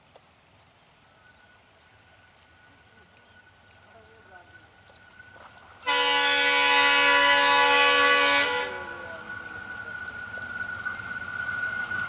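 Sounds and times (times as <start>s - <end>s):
approaching train running: 0.4s - 12.0s
locomotive horn blast: 5.8s - 9.4s.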